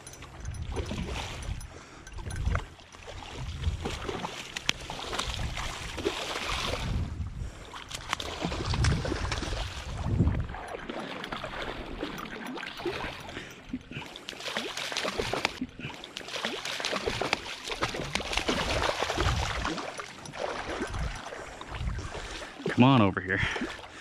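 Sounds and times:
fish splashing in water: 0:02.5 - 0:06.9, 0:07.8 - 0:13.4, 0:14.0 - 0:22.7.

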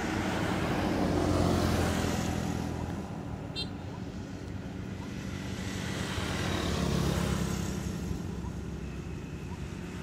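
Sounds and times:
motor vehicle passing: 0:00.0 - 0:10.0.

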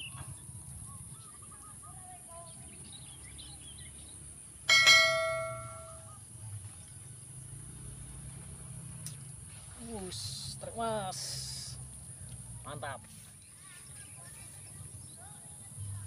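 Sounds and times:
bell-like ding: 0:04.7 - 0:06.1.

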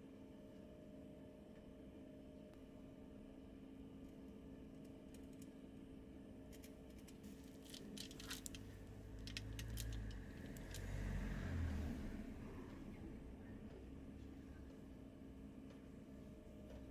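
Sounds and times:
chopsticks clicking on foil: 0:06.6 - 0:10.8.

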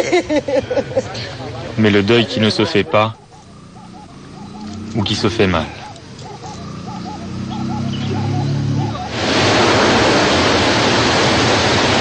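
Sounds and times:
loud steady rushing noise: 0:01.7 - 0:12.0
faint bird calls: 0:02.3 - 0:09.2.

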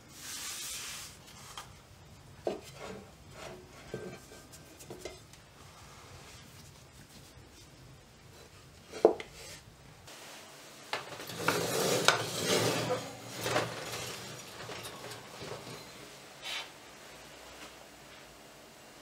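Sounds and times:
metal tins clattering on oven rack: 0:11.0 - 0:16.1.

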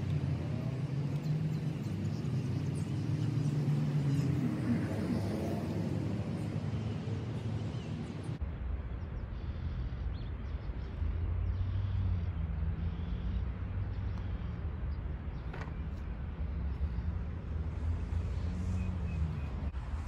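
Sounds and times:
low outdoor rumble: 0:07.2 - 0:20.0.

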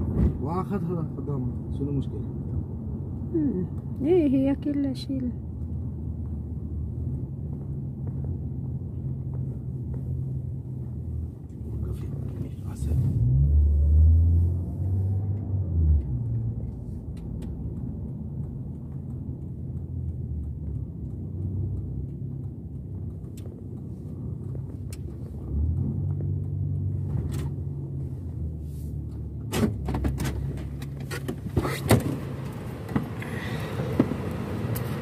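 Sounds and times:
car engine hum: 0:00.0 - 0:35.0
road rumble inside car: 0:00.0 - 0:35.0.

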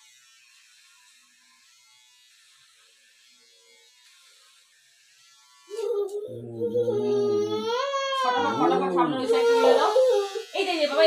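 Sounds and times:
child crying loudly: 0:05.7 - 0:10.6.

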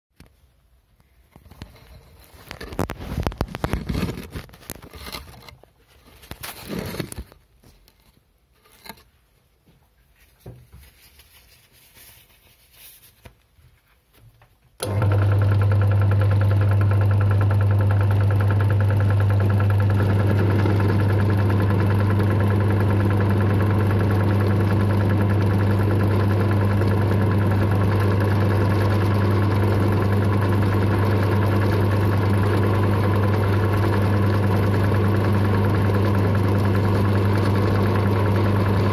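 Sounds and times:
drill press motor hum: 0:14.8 - 0:38.9.

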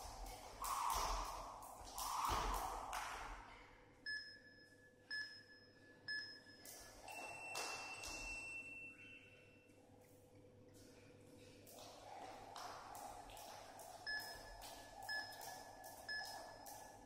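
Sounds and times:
timer beeping: 0:04.1 - 0:09.6, 0:14.0 - 0:17.0.

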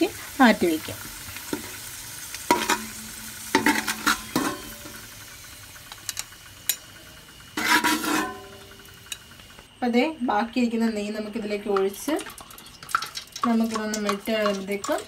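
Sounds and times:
nuts sizzling in a pot: 0:00.0 - 0:15.0
metal ladle scraping pan: 0:02.5 - 0:05.0, 0:07.6 - 0:08.8.

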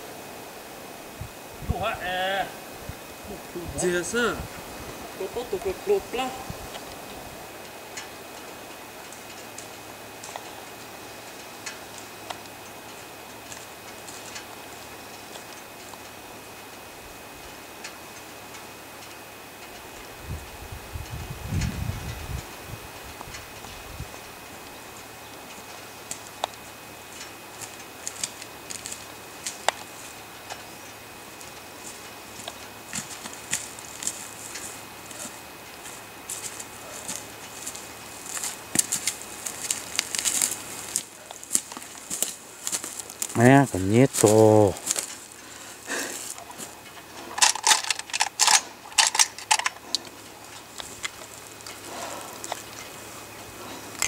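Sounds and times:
twigs snapping: 0:27.2 - 0:29.9, 0:31.4 - 0:43.4, 0:44.2 - 0:53.1
footsteps crunching on pine needles: 0:27.2 - 0:30.2, 0:31.3 - 0:54.0.

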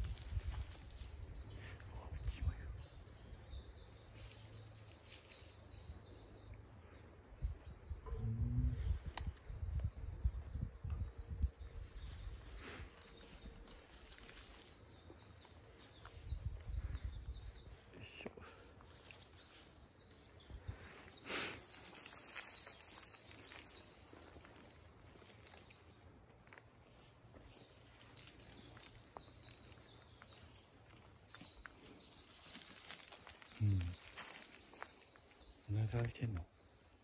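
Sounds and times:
faint bird chirps: 0:07.4 - 0:37.0.

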